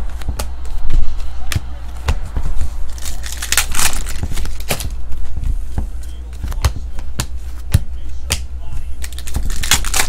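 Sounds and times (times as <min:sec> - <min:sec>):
trading cards shuffled by hand: 0:02.5 - 0:10.0
foil wrapper crinkling: 0:02.9 - 0:04.9, 0:09.0 - 0:10.0
card snaps: 0:09.0 - 0:10.0.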